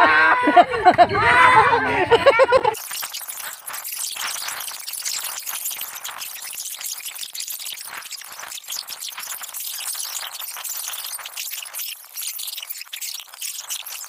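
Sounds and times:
crackling static hiss: 0:02.6 - 0:14.0.

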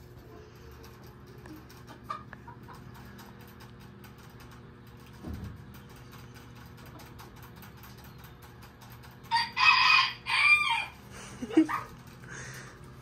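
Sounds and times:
rooster crowing: 0:09.3 - 0:11.0.

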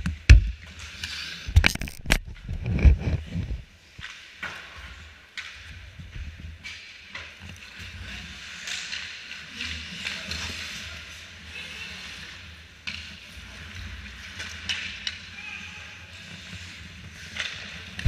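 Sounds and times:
skate blades scraping ice: 0:06.5 - 0:18.0.

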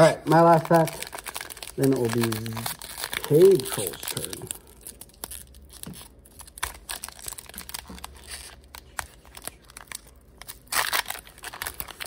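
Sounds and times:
foil wrapper crinkling and tearing: 0:00.0 - 0:12.0.

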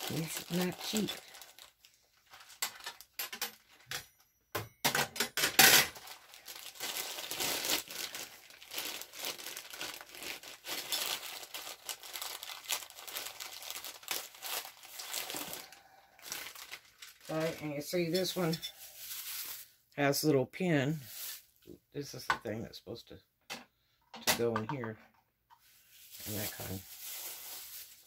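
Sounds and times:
plastic crinkling and rustling: 0:00.0 - 0:04.0, 0:05.2 - 0:19.8, 0:21.0 - 0:21.6, 0:25.6 - 0:28.0.

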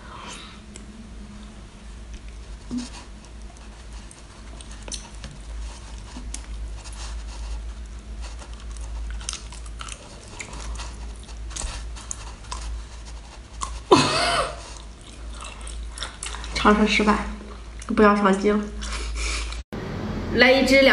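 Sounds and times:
steady low hum: 0:00.0 - 0:20.9
wet chewing and biting: 0:02.1 - 0:13.9, 0:14.6 - 0:16.6.

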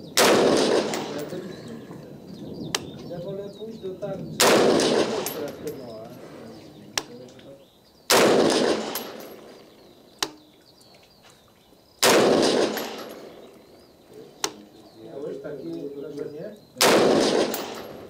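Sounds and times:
rifle shots with echo: 0:00.0 - 0:01.5, 0:04.3 - 0:06.4, 0:08.1 - 0:09.8, 0:12.0 - 0:13.6, 0:16.8 - 0:18.0.

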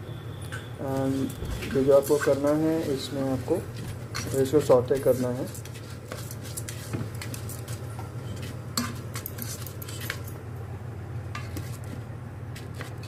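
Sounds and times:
low steady hum: 0:00.0 - 0:13.0
paddle scraping rice in metal pot: 0:04.2 - 0:10.3.

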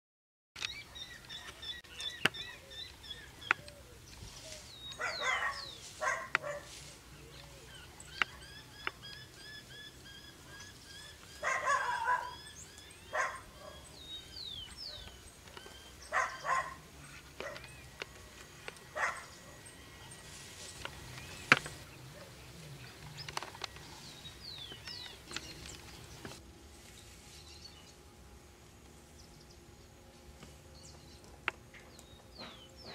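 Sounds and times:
woodpecker tapping bark: 0:00.6 - 0:03.9, 0:04.8 - 0:06.7, 0:08.1 - 0:09.4, 0:14.5 - 0:19.6
small birds chirping: 0:00.6 - 0:28.1.

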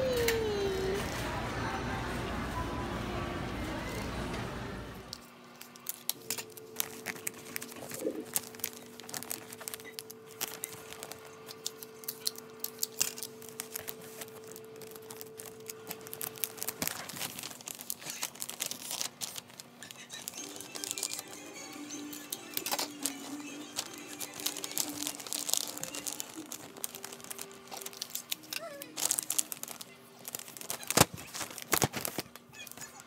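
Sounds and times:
faint steady hum: 0:00.0 - 0:33.0
plastic bag crinkling: 0:05.2 - 0:33.0.

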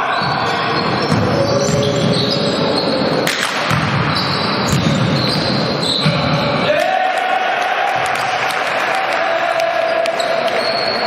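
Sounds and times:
basketball dribbling on wooden court: 0:00.9 - 0:02.2, 0:03.7 - 0:06.4.

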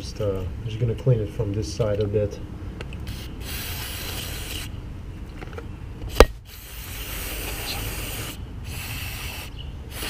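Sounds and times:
aerosol spray hissing: 0:03.1 - 0:04.7, 0:06.5 - 0:10.0.

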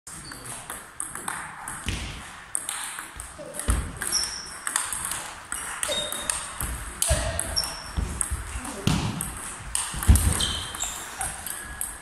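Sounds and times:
shoes squeaking on floor: 0:00.1 - 0:00.6, 0:03.3 - 0:04.8, 0:05.4 - 0:08.8, 0:09.5 - 0:12.0
ping pong ball clicks: 0:00.3 - 0:02.0, 0:02.6 - 0:10.7
footsteps thudding: 0:06.5 - 0:10.8.

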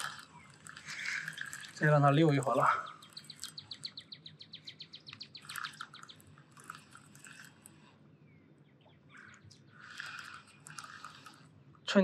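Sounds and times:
fishing reel clicking: 0:09.8 - 0:11.5.

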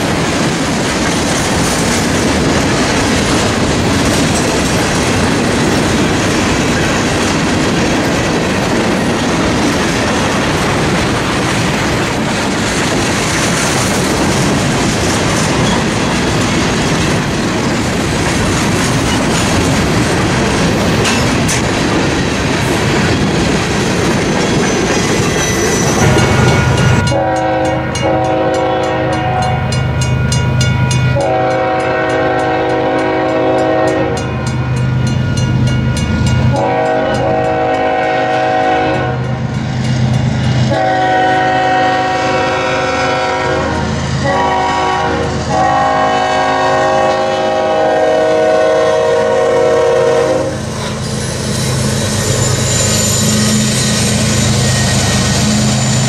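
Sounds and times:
train wheels clacking on rails: 0:00.0 - 0:56.0
locomotive air horn blasts: 0:27.0 - 0:29.7, 0:31.1 - 0:34.2, 0:36.5 - 0:39.3, 0:40.7 - 0:50.7.

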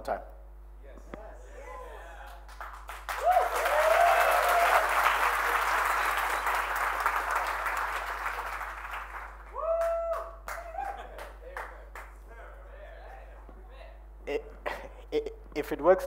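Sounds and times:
audience applauding: 0:02.2 - 0:12.2.

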